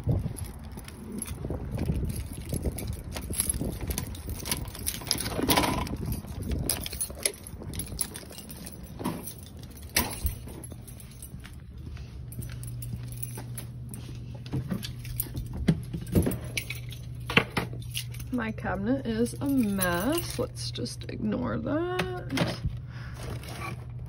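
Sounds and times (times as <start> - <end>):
key turning in door lock: 0.0 - 11.7
keys jangling: 0.0 - 20.6
low steady hum: 0.0 - 24.0.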